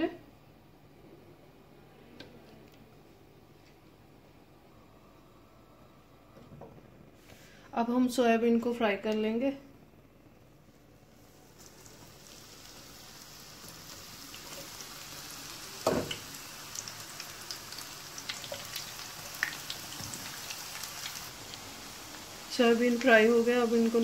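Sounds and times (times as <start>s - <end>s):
food sizzling in hot oil: 11.1s - 24.0s.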